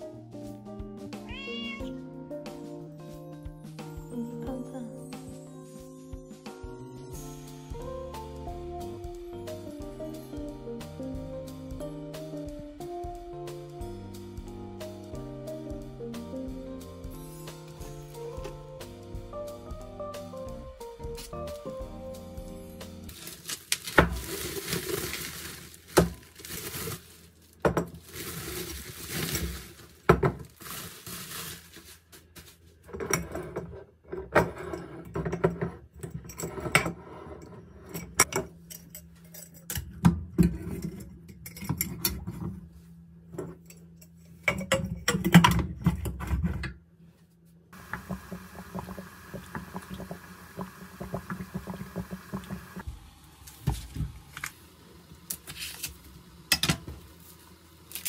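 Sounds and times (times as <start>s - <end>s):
bubble wrap rustling: 23.1s - 32.8s, 55.4s - 56.0s, 57.1s - 58.0s
water bubbling in a pan: 47.8s - 54.3s.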